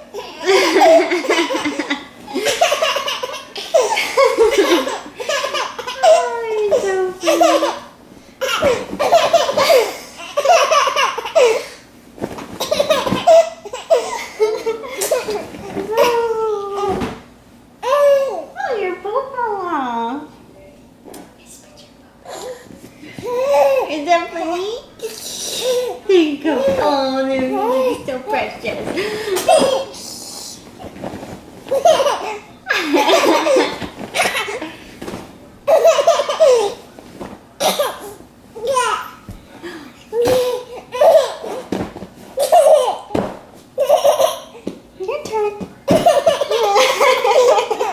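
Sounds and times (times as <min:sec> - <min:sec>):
baby belly-laughing: 0:00.1 - 0:11.7, 0:12.6 - 0:16.2, 0:23.2 - 0:23.9, 0:29.3 - 0:29.9, 0:31.7 - 0:34.6, 0:35.7 - 0:36.8, 0:43.8 - 0:44.6, 0:45.9 - 0:47.9.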